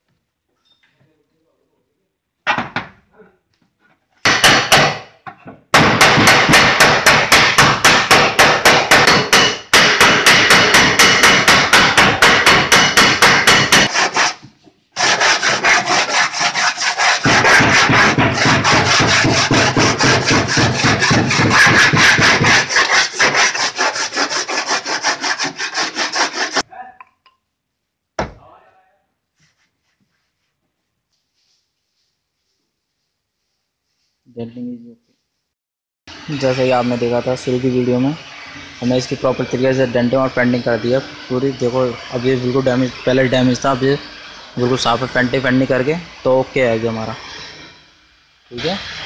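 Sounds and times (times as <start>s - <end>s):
hand sanding strokes: 6.0s - 14.4s, 15.0s - 26.7s, 29.4s - 34.2s, 36.1s - 49.0s.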